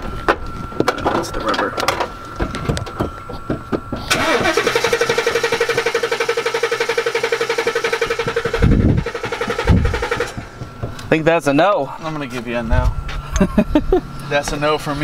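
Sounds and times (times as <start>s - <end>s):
engine starter cranking: 4.1s - 10.6s.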